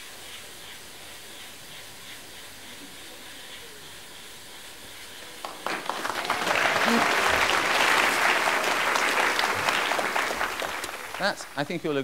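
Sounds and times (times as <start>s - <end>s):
compressed air hissing: 0.0s - 5.7s
people applauding: 5.4s - 12.0s.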